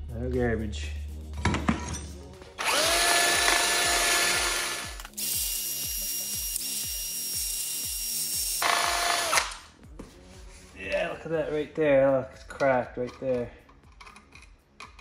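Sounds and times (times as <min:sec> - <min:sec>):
drill spinning wire brush on metal: 0:02.6 - 0:09.4.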